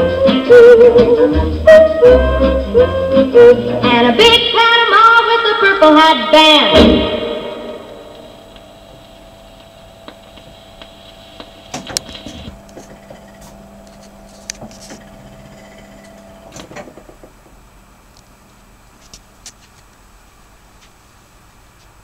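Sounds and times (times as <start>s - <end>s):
jukebox motor hum: 8.1s - 18.8s
mechanism clicks and clunks: 11.7s - 17.6s.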